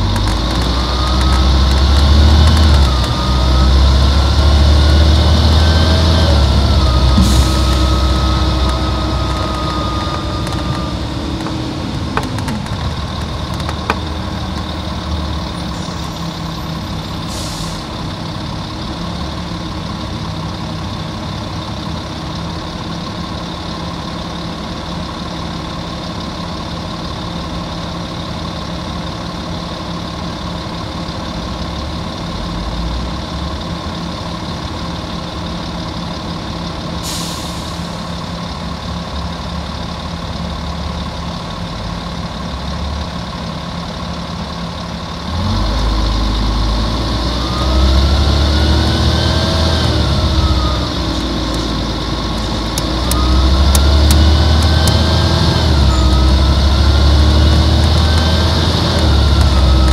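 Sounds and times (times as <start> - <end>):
sharp clicks: 0.0 - 3.5, 50.9 - 56.6, 57.3 - 59.9
diesel bus engine idling: 0.0 - 59.9
short air hisses: 37.0 - 38.0.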